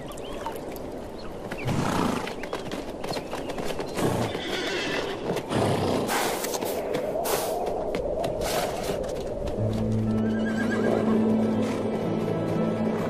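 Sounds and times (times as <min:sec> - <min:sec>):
hooves clopping on ground: 0:00.0 - 0:13.0
horses neighing: 0:04.0 - 0:06.5, 0:10.2 - 0:11.8.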